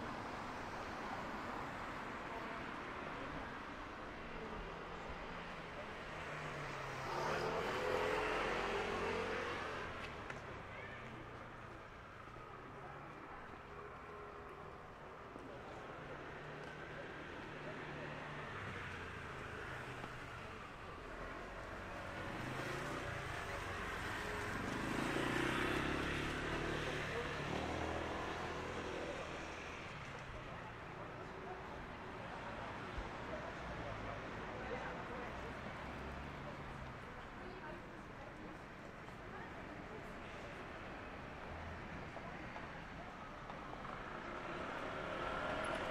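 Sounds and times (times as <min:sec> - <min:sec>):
vehicle passing by: 0:06.3 - 0:10.0, 0:22.0 - 0:29.8.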